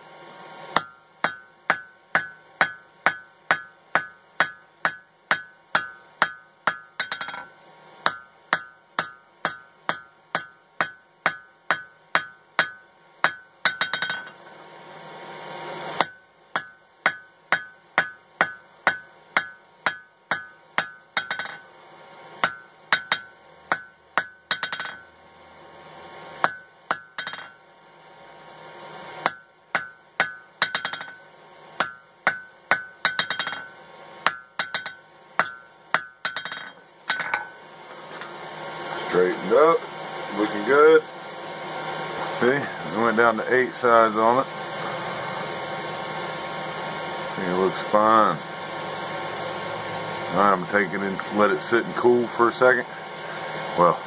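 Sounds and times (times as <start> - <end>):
hammer striking steel on anvil: 0.7 - 14.6, 16.0 - 21.7, 22.4 - 25.1, 26.4 - 27.6, 29.2 - 38.4.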